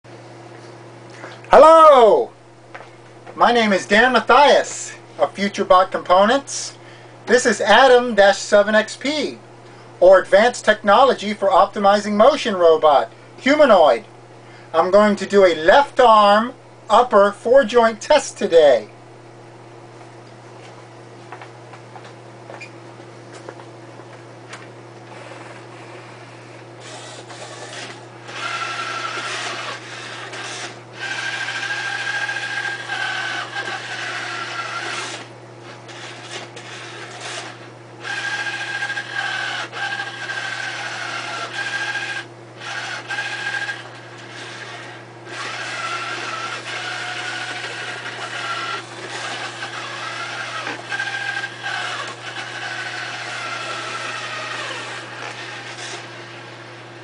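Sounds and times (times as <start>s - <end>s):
steady low hum: 0.1s - 57.0s
robot arm motors whining: 25.1s - 56.6s.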